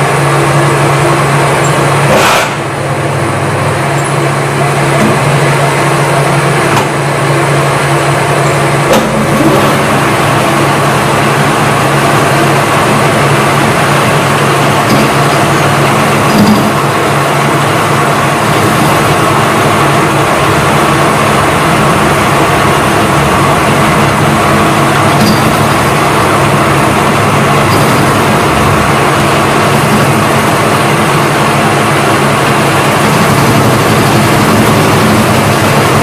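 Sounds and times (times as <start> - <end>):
metal lathe running: 0.0 - 36.0.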